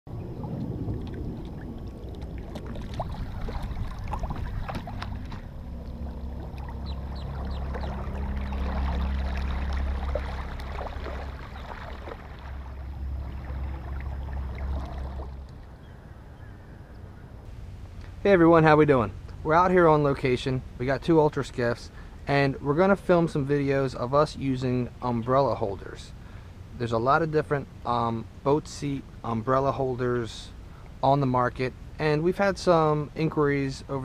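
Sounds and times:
water splashing against hull: 0:00.1 - 0:16.0
electric motor low hum: 0:00.1 - 0:18.3.

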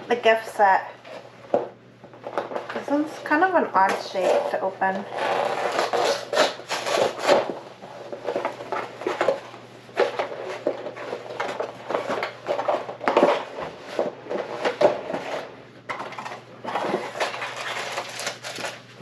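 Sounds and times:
cardboard box scraping and rustling: 0:04.2 - 0:15.5, 0:16.2 - 0:18.3.

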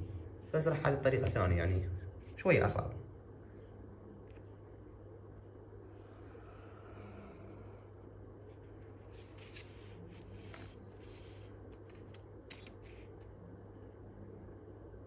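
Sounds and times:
low hum: 0:00.0 - 0:15.0
paper and ruler rustling: 0:08.9 - 0:13.3.

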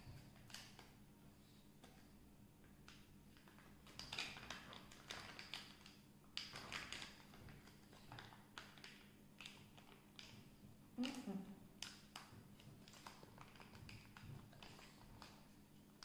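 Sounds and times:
plastic wrapper crinkling: 0:02.8 - 0:10.4, 0:11.0 - 0:16.0.

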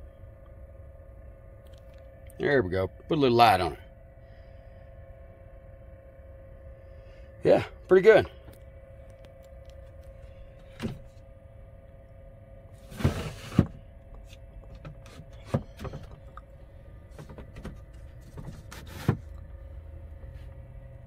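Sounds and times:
steady hum: 0:00.0 - 0:21.0
cabinet door scraping clatter: 0:12.8 - 0:13.8.

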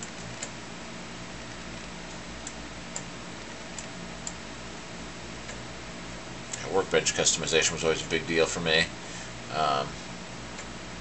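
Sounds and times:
computer fans humming: 0:00.0 - 0:11.0.

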